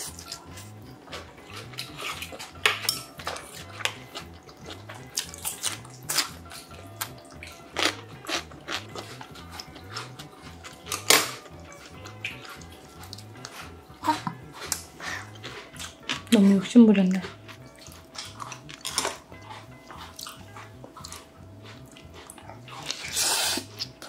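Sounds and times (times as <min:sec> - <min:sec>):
soft background music: 0:00.0 - 0:24.0
chopsticks clinking on metal bowl: 0:01.7 - 0:03.6.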